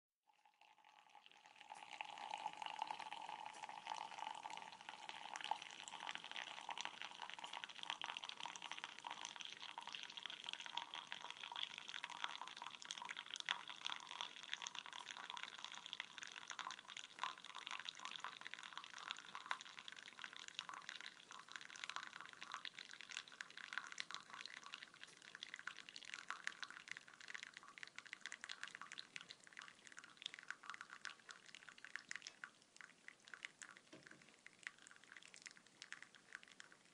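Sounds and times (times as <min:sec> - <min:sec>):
coffee trickling into a cup: 0:00.3 - 0:36.9.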